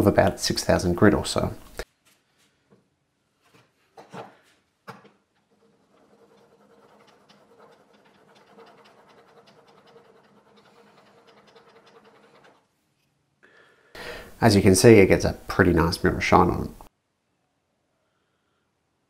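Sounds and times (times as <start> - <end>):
blade scraping on strop: 5.5 - 12.6.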